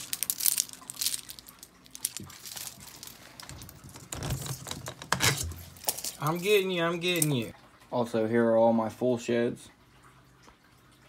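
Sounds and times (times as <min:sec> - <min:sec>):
hands rustling: 0:00.0 - 0:06.6.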